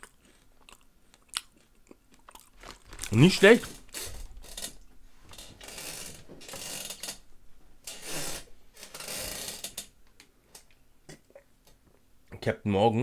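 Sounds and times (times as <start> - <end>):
rustling and scraping: 2.5 - 9.9.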